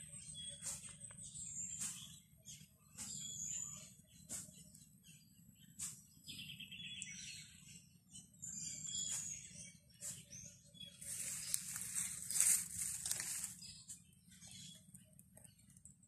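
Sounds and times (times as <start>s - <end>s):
birds chirping: 0.0s - 16.0s
rustle of leaves and branches: 11.0s - 13.8s.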